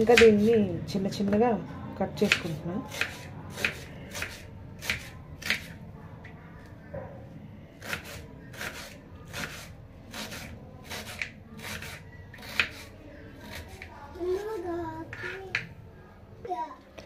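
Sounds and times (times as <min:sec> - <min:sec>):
knife slicing onion: 0:00.0 - 0:00.7, 0:02.2 - 0:05.8, 0:07.8 - 0:15.6.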